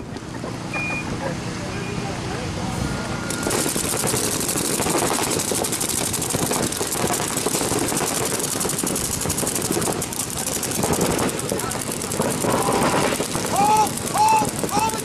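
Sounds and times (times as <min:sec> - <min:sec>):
rapid paintball marker fire: 0:03.3 - 0:15.0.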